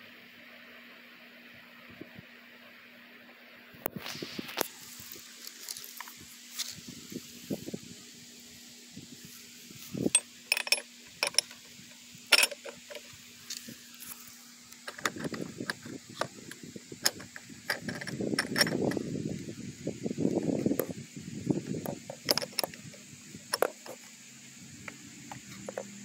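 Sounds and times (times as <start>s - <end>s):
metal wrench clicks and clinks: 10.1s - 11.6s, 12.3s - 13.0s, 17.0s - 19.0s, 22.2s - 22.8s.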